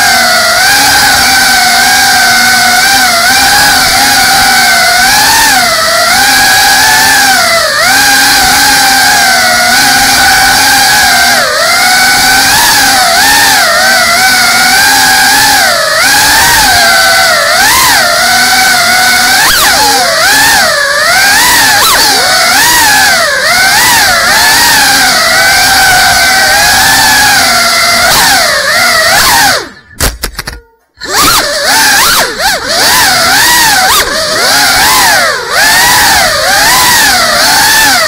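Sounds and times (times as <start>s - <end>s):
quadcopter motors whining: 0.0s - 38.0s.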